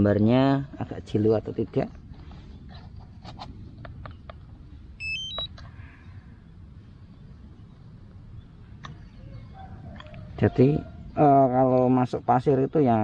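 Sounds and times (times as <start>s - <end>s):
faint background noise: 0.0s - 13.0s
high electronic beeps: 5.0s - 5.5s.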